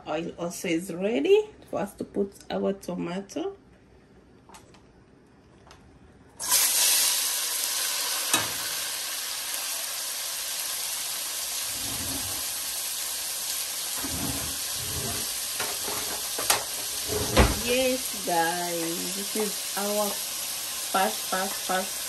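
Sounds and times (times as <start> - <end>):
vegetables sizzling in hot oil: 6.4 - 22.0.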